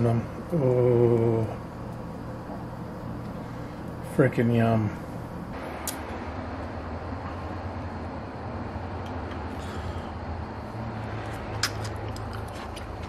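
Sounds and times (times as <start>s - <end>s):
room hum and hiss: 0.0s - 13.0s
sharp click: 5.8s - 6.1s.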